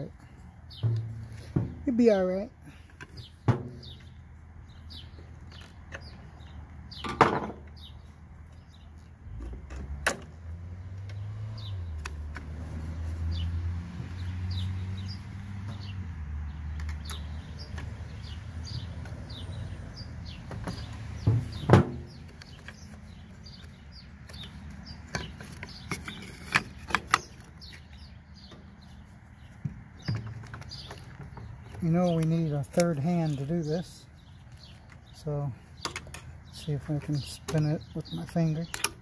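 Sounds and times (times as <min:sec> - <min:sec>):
bird chirping: 0:00.0 - 0:10.0, 0:10.8 - 0:39.0.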